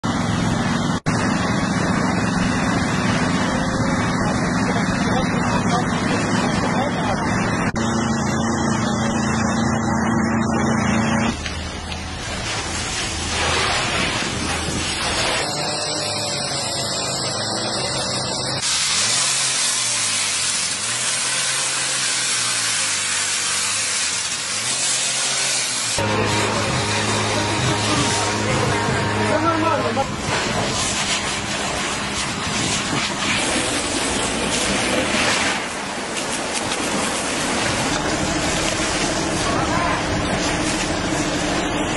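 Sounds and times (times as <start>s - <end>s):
engine humming: 0.0s - 41.9s
large fire burning: 0.1s - 41.9s
fire crackling: 11.3s - 15.5s, 30.1s - 41.9s.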